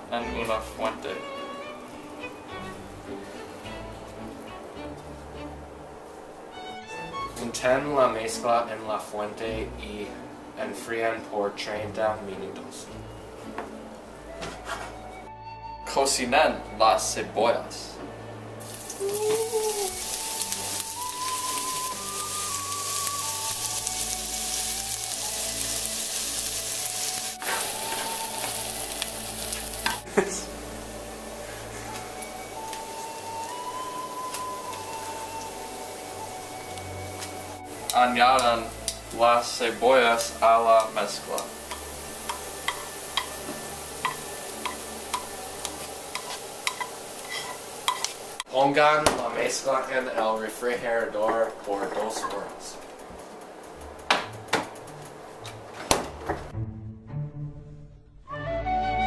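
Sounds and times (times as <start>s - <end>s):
onions sizzling in a pan: 0.0s - 5.6s, 18.6s - 55.4s
low hum and hiss: 0.0s - 57.2s
faint background music: 0.0s - 59.0s
metal tongs stirring: 37.9s - 48.6s.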